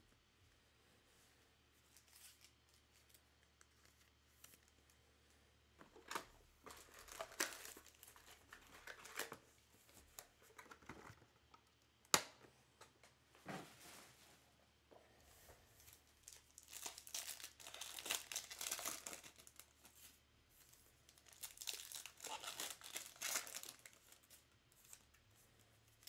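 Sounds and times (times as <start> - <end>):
packaging tearing and crinkling: 6.0 - 9.4, 16.3 - 19.7, 21.1 - 25.1.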